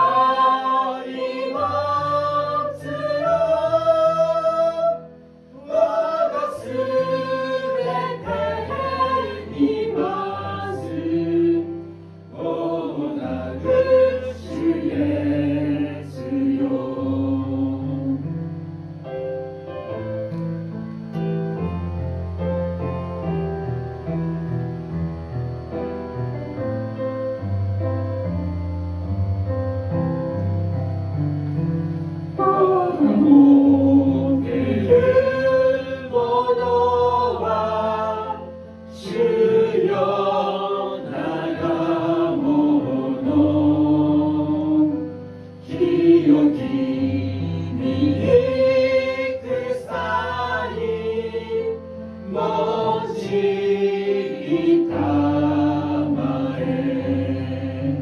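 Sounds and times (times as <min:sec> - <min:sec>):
hymn accompaniment chords: 0:31.1 - 0:58.0
woman singing a hymn: 0:32.4 - 0:37.6.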